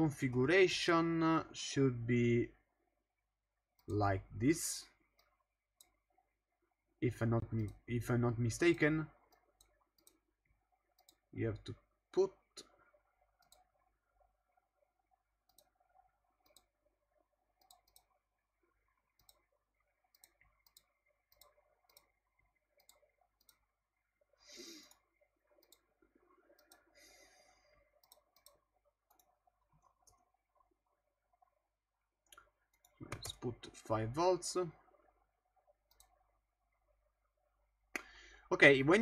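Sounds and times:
computer mouse clicks: 7.4s - 7.9s, 11.0s - 11.2s, 13.4s - 13.7s, 15.5s - 15.7s, 16.4s - 16.8s, 17.6s - 18.2s, 19.1s - 19.5s, 20.1s - 22.1s, 22.8s - 23.7s, 24.7s - 25.9s, 26.6s - 27.2s, 27.9s - 30.2s, 32.3s - 33.5s, 35.9s - 36.2s
soft breath: 24.4s - 25.0s, 26.9s - 27.9s, 38.0s - 38.5s.

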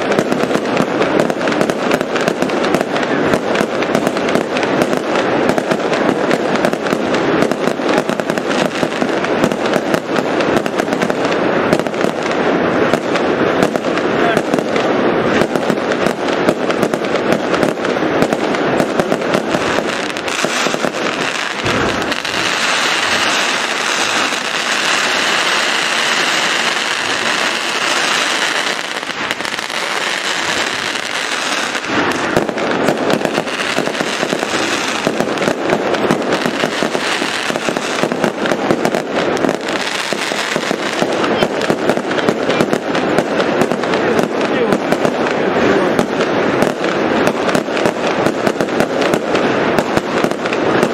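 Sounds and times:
fireworks bangs and crackling: 0.0s - 50.9s
deep firework boom: 12.8s - 41.1s.

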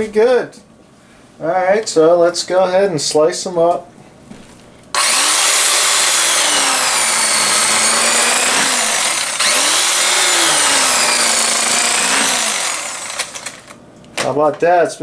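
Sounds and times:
electric carving knife buzzing: 5.0s - 13.8s.

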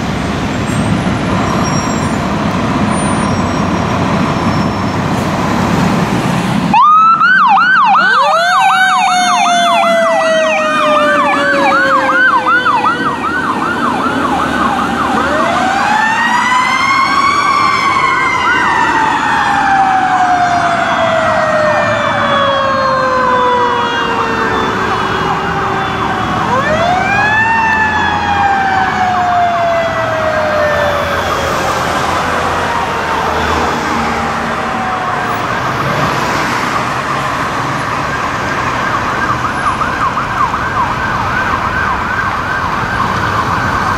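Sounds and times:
electronic siren yelping: 6.7s - 37.4s, 38.0s - 43.9s.

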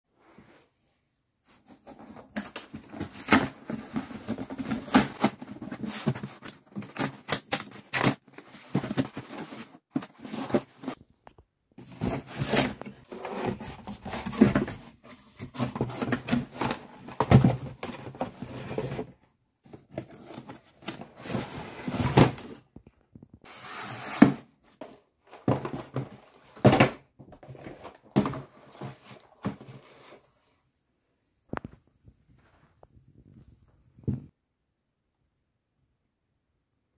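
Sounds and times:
cardboard rustling and tearing: 1.7s - 11.0s, 11.8s - 22.6s
boxes knocking when set down: 25.4s - 29.8s.

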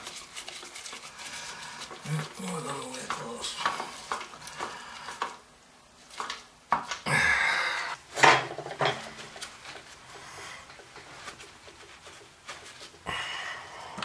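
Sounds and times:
scraping rustle: 0.0s - 5.2s.

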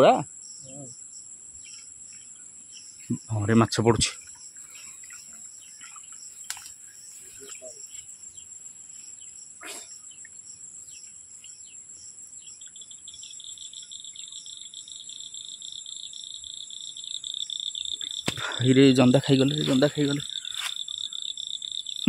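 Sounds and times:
insects chirring high drone: 0.0s - 22.0s
lower insect drone: 0.0s - 22.0s.

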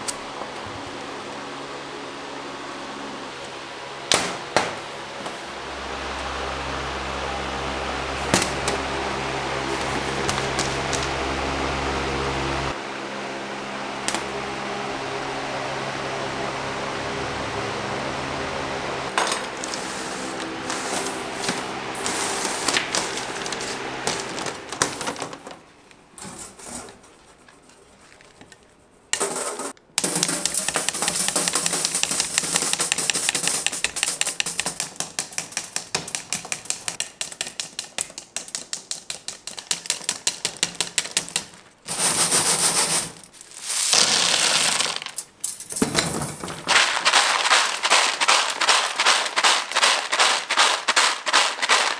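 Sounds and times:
blade chopping candy on stone: 30.0s - 41.6s
candy pieces clattering: 38.4s - 51.9s.

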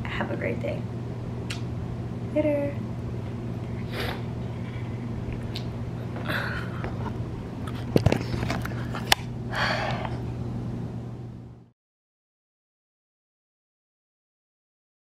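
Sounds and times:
steady low hum: 0.0s - 11.7s.

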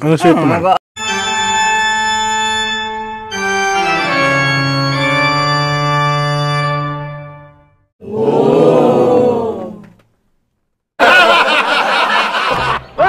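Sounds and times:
organ-like keyboard chords: 1.0s - 7.8s.

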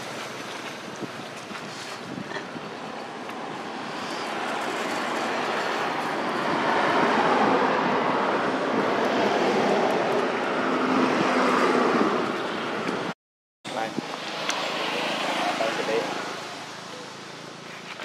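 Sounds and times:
passing vehicle engine rushing: 14.0s - 16.7s.

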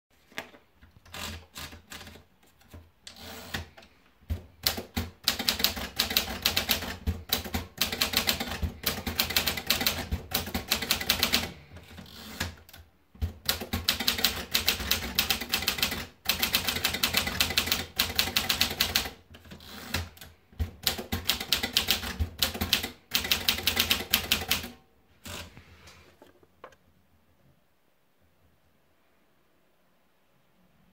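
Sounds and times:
typewriter paper feed rattles: 1.0s - 12.6s, 13.2s - 24.7s
typewriter keystrokes clacking: 3.1s - 24.8s.

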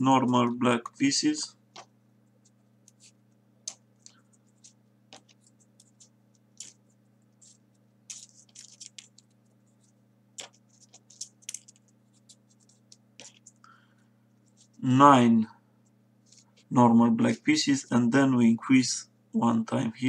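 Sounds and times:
faint low hum: 0.0s - 20.0s
paper rustling and clicking: 2.8s - 13.6s.

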